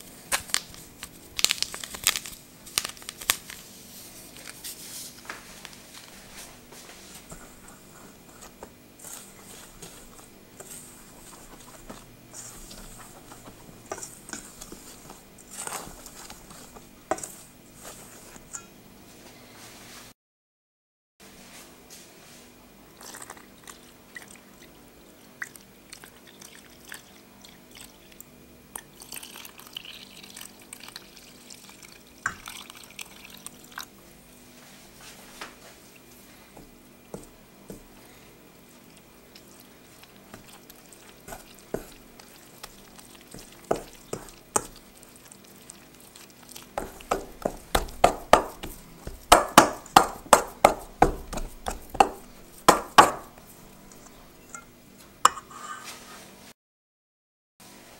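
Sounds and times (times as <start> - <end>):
hand mixing with wet squishes: 0.0 - 18.6, 34.9 - 54.5
dough slapping against bowl: 7.2 - 18.6, 40.0 - 54.2.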